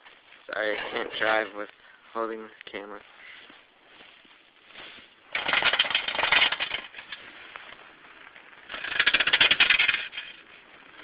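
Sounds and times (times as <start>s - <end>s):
toy truck rattling: 5.3s - 7.2s, 8.6s - 10.5s.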